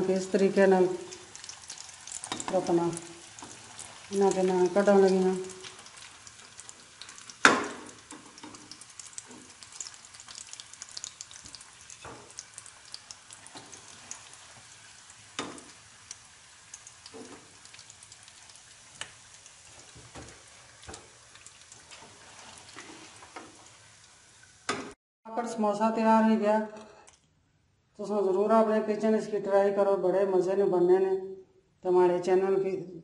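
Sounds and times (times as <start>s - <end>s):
food sizzling in hot oil: 0.0s - 25.0s.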